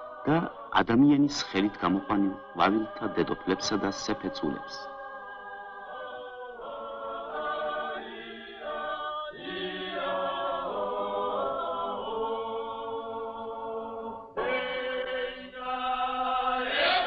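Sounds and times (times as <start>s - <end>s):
choir singing slow chords: 0.0s - 17.0s.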